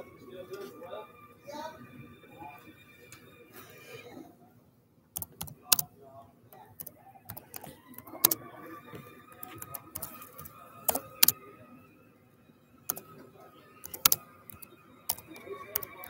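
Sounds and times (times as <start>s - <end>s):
laptop keyboard typing: 5.2s - 5.9s, 6.6s - 8.5s, 9.3s - 11.4s, 12.9s - 13.2s, 13.8s - 16.0s.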